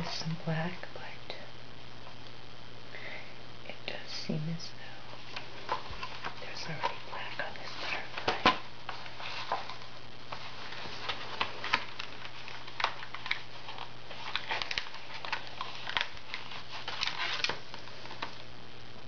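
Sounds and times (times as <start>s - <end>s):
low steady hum: 0.0s - 19.0s
rustles: 5.1s - 18.5s.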